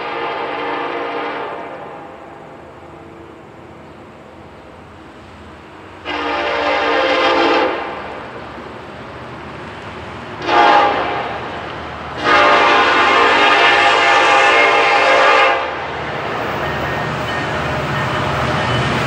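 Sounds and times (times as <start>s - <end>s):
locomotive air horn blasts: 0.0s - 2.4s, 6.0s - 8.2s, 10.4s - 11.5s, 12.2s - 15.8s
low train rumble: 0.0s - 19.0s.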